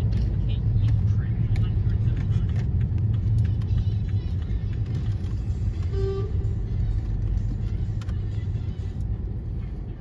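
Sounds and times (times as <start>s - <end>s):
car cabin road rumble: 0.0s - 10.0s
car horn toot: 5.8s - 6.7s.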